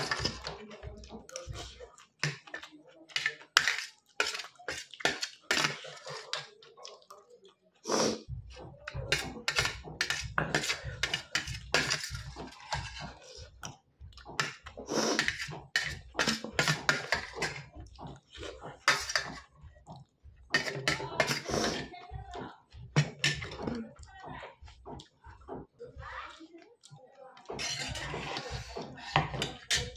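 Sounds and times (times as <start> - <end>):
fork scraping steel plate: 0.0 - 0.5, 9.1 - 13.4, 14.4 - 17.7, 18.8 - 19.5, 20.5 - 21.9, 27.5 - 29.9
mouth eating sounds: 5.9 - 11.0.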